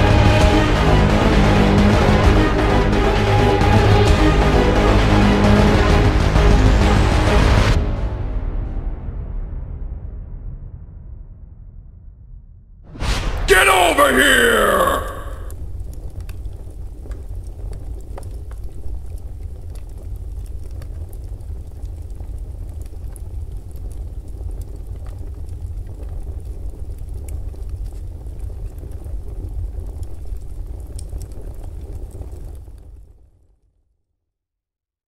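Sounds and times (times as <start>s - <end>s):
faint crackles: 15.6s - 33.3s.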